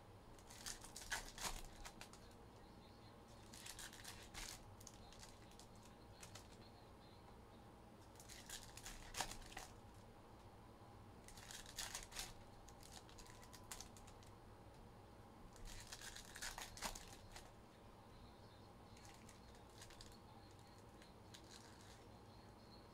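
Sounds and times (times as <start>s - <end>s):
foil wrappers tearing and crinkling: 0.4s - 2.2s, 3.4s - 6.6s, 8.2s - 9.7s, 11.3s - 14.2s, 15.6s - 17.5s.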